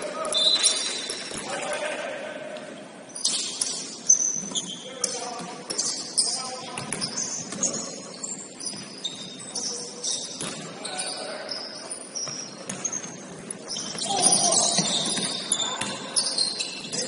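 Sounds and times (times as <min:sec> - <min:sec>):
sneakers squeaking on hardwood: 0:03.1 - 0:17.0
basketball bouncing: 0:06.8 - 0:07.8
players calling out: 0:13.7 - 0:17.0.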